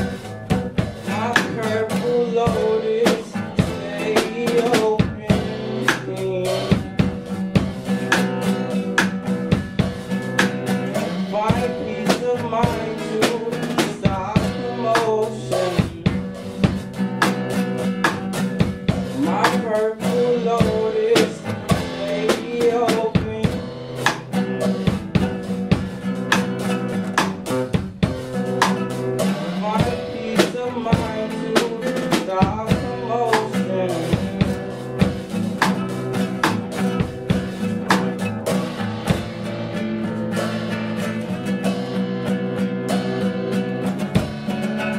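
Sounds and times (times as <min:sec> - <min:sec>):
classical guitar chords: 0:00.0 - 0:44.9
drum kit with cymbals: 0:00.0 - 0:44.9.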